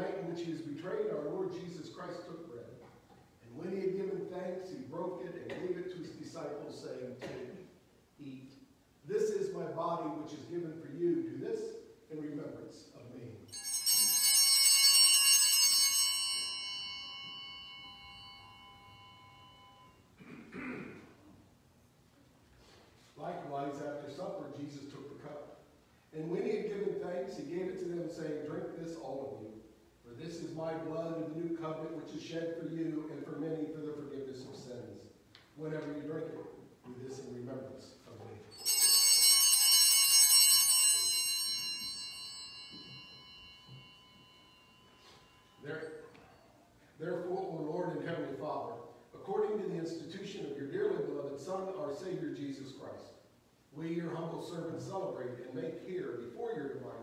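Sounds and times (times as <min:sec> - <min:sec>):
small bells ringing: 0:13.4 - 0:20.2, 0:38.4 - 0:47.0.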